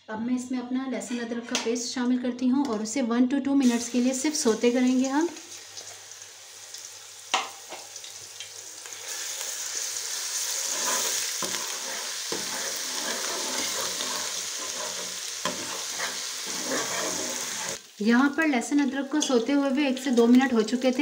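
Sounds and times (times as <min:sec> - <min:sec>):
paste sizzling in hot oil: 0:03.6 - 0:21.0.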